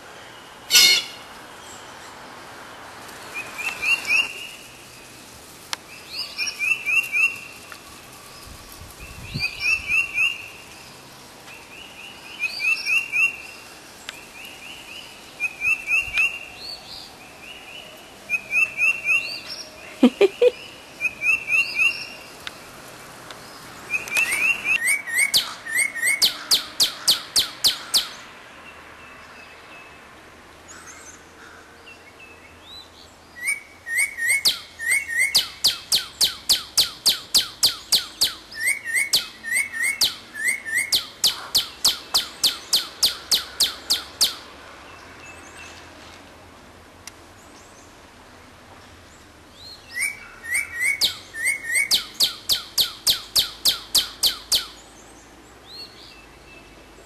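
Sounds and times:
songbirds singing: 0.0s - 46.2s, 47.0s - 57.0s
rapid high bird notes: 0.7s - 1.3s, 33.9s - 44.5s.

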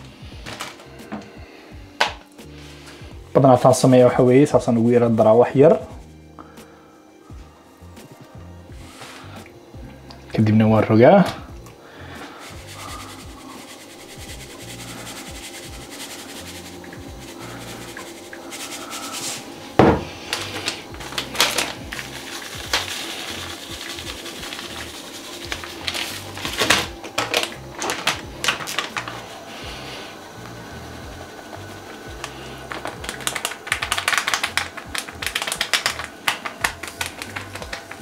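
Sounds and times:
quiet background music: 0.0s - 38.0s
plastic packets crinkling: 0.4s - 1.3s, 20.1s - 29.5s, 31.4s - 38.0s
knock on counter: 19.8s - 20.1s.

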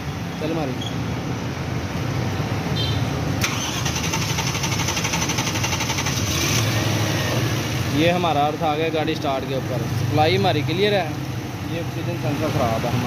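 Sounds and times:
engine starter cranking: 3.4s - 6.6s.

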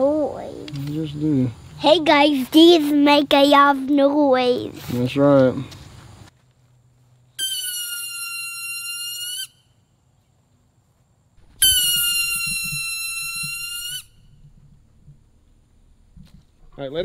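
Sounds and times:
toy helicopter high-pitched whistle: 7.4s - 9.6s, 11.6s - 14.4s.

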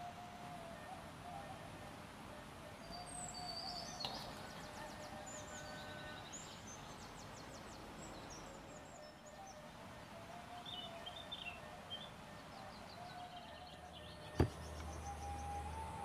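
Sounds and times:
background hiss: 0.0s - 16.0s
small birds chirping: 2.8s - 9.7s, 10.4s - 16.0s
light tap: 14.4s - 14.9s.

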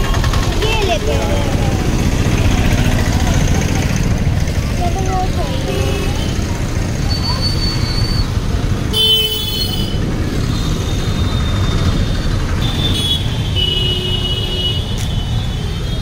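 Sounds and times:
rumble of passing motorbikes: 0.0s - 16.0s
vehicle horns honking: 5.5s - 6.5s, 8.9s - 16.0s.

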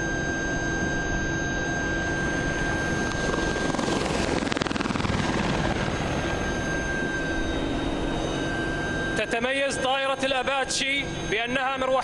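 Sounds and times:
helicopter flying past: 1.8s - 11.4s.

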